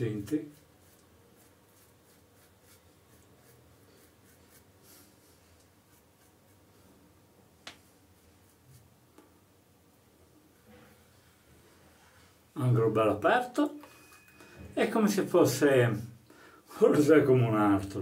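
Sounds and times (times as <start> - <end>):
razor scratching through stubble: 0.4 - 4.8, 5.5 - 6.6.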